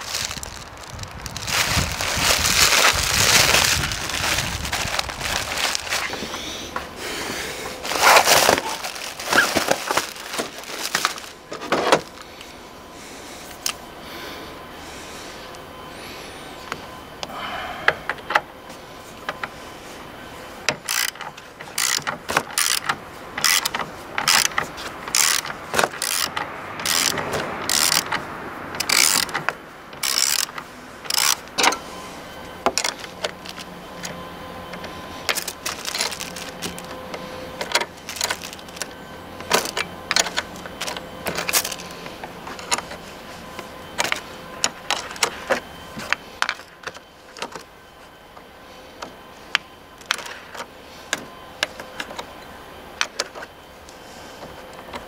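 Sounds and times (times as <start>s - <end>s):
ratchet wrench clicking: 20.7s - 28.1s, 28.8s - 29.3s, 30.0s - 31.4s.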